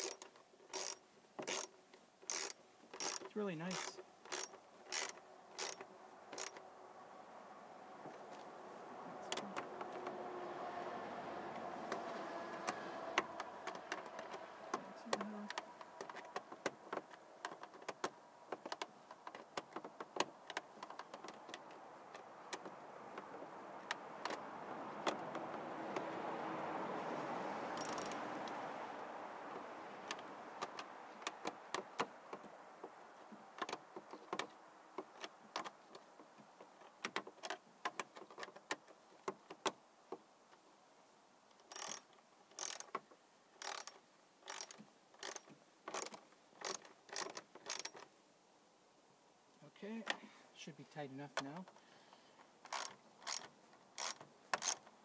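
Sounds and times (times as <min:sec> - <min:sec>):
screwdriver clicking on screws: 0:41.7 - 0:43.0, 0:43.6 - 0:43.9, 0:44.5 - 0:48.0, 0:52.7 - 0:54.9.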